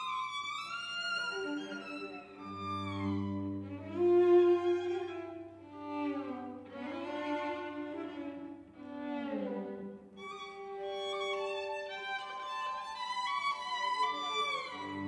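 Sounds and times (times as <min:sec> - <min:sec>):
cello: 0:00.0 - 0:15.0
violin: 0:00.0 - 0:15.0.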